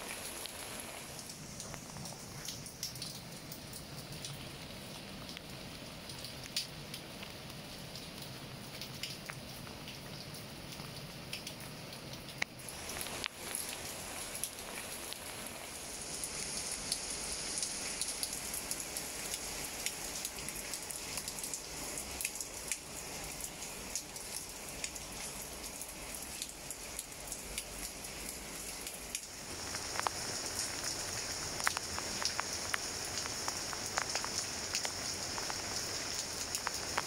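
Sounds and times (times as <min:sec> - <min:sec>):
rain falling on leaves: 0:00.0 - 0:37.0.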